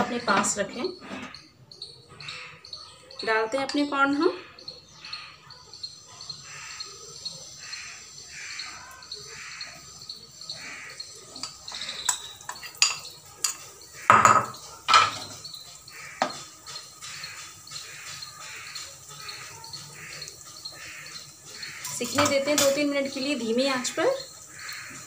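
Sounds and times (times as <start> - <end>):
corn sizzling in oil: 5.7 - 25.0
spoon scraping a bowl: 10.8 - 22.8.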